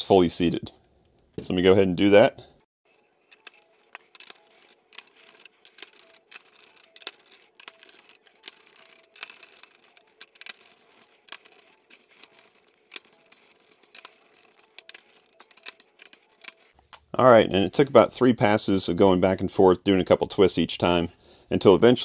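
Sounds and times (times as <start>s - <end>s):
screwdriver clicks and scrapes: 2.9s - 16.8s.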